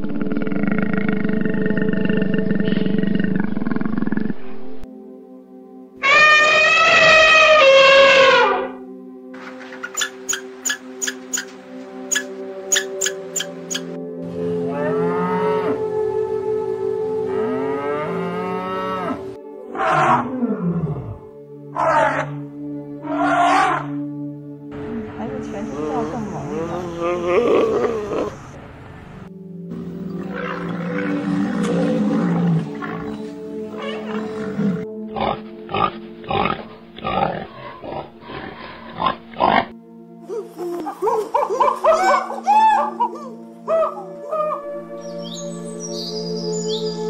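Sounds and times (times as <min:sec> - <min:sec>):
pig grunting: 0:00.0 - 0:04.6, 0:25.7 - 0:28.6, 0:30.1 - 0:39.7
background music: 0:04.2 - 0:28.6, 0:29.2 - 0:47.0
elephant trumpeting: 0:06.0 - 0:08.8, 0:21.7 - 0:22.4, 0:23.0 - 0:24.0, 0:30.1 - 0:39.7
cow mooing: 0:14.7 - 0:15.8, 0:17.2 - 0:22.4, 0:23.0 - 0:23.9, 0:25.7 - 0:28.5, 0:30.1 - 0:39.7
chimpanzee hoots: 0:26.5 - 0:28.5, 0:39.4 - 0:44.6.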